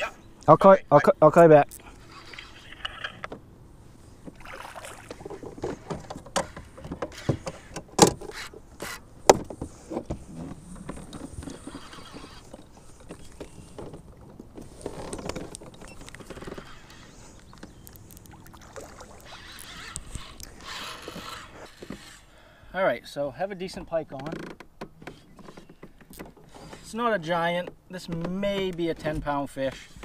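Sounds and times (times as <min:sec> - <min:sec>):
water swishes: 0:01.8 - 0:22.3
gear knocking against kayak hull: 0:05.0 - 0:17.8.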